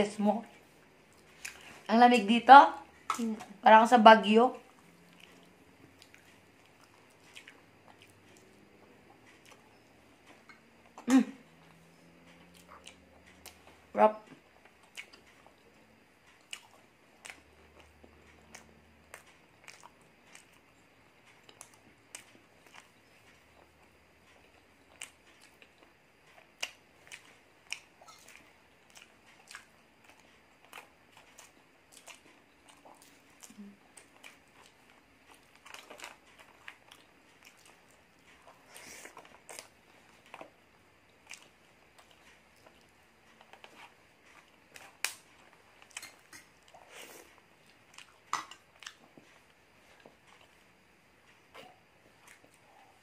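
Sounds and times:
soft chewing: 0.0s - 53.0s
person short vocal sound: 11.0s - 11.4s.

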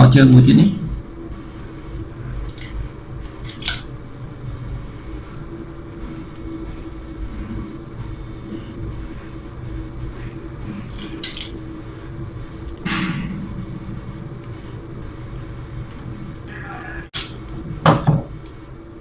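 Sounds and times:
steady low hum: 0.0s - 19.0s
screwdriver handling clicks: 3.4s - 3.8s.

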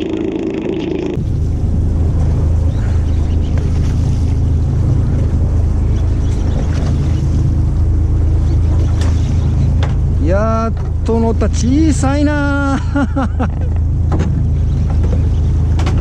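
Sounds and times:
boat engine humming: 0.0s - 16.0s
sea noise: 0.0s - 16.0s
wind: 0.0s - 16.0s.

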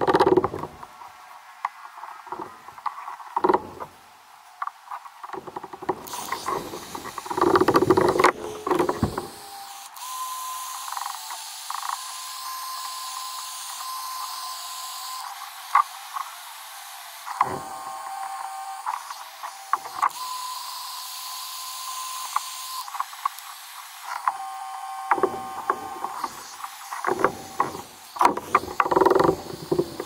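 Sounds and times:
tools knocking plastic: 5.4s - 9.3s, 25.1s - 26.4s, 27.0s - 30.0s
screwdriver scraping plastic: 5.4s - 9.5s, 25.0s - 30.0s
heat gun blowing: 17.2s - 30.0s.

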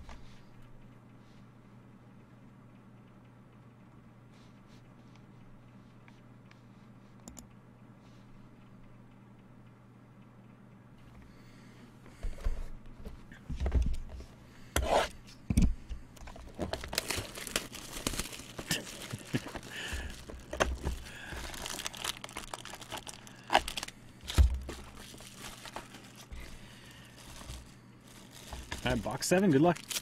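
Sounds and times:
plastic wrapping tearing and crinkling: 16.5s - 30.0s.

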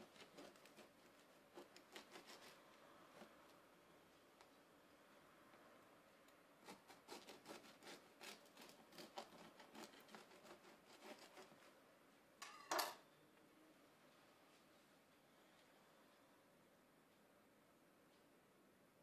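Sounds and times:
bread knife sawing crust: 0.0s - 2.6s, 6.6s - 11.7s
bread slice rustle: 0.0s - 2.6s, 6.6s - 11.7s.

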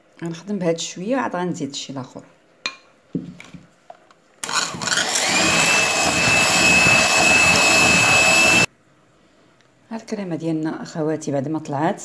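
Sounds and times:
electric hand mixer whining: 4.4s - 8.7s.

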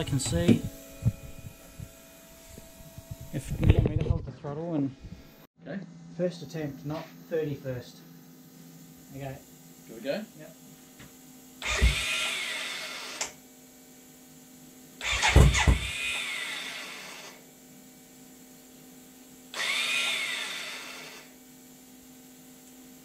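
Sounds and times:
electric starter cranking engine: 11.6s - 13.4s, 15.0s - 17.4s, 19.5s - 21.3s.

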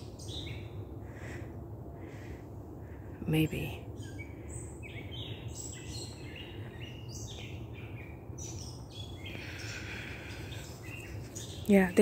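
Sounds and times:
birds chirping and whistling: 0.0s - 1.4s, 3.9s - 12.0s
low steady rumble: 0.0s - 12.0s.

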